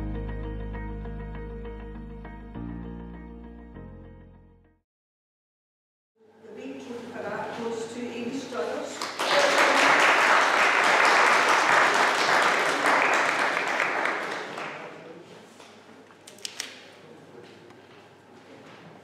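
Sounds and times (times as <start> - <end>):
audience applauding: 9.0 - 15.0.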